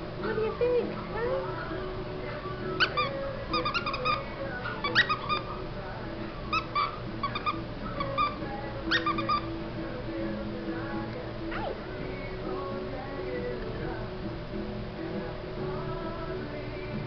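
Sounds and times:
puppies whimpering: 2.8 - 5.5, 6.4 - 9.5.

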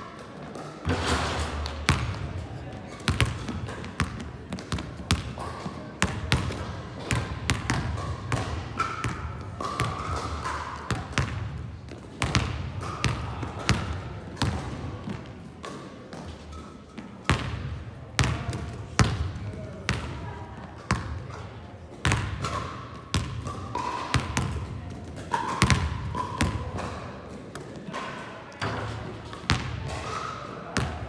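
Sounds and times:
basketballs bouncing on floor: 3.1 - 16.6, 17.2 - 21.4, 22.0 - 27.0, 29.3 - 30.1.

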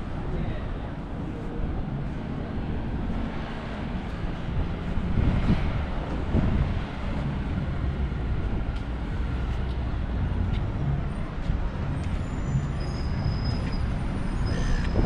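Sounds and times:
road traffic: 0.0 - 15.0
faint high squeaks: 12.2 - 15.0.

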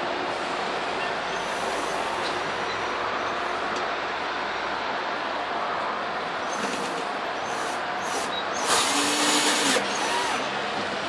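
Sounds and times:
cordless drill drilling into wood: 7.5 - 10.5.

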